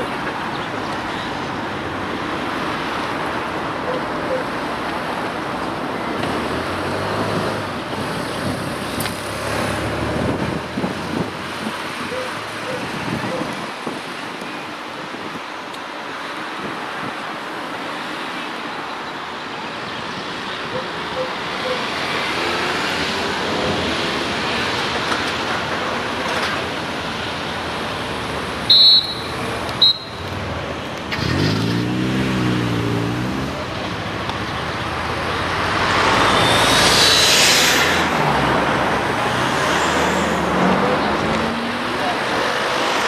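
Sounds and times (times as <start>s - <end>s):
cars driving past: 4.6s - 13.4s, 20.1s - 43.0s.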